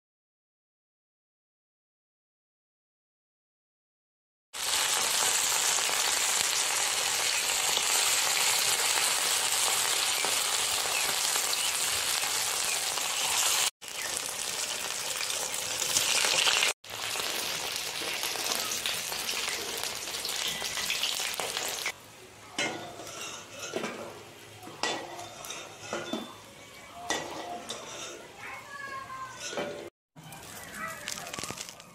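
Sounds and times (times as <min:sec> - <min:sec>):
hot oil sizzling: 0:04.6 - 0:28.0
metal spatula scraping a pan: 0:22.6 - 0:29.9.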